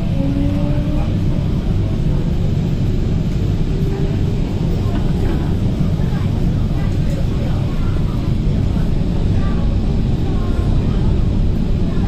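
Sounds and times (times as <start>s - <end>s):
train wheels rumbling: 0.0s - 12.0s.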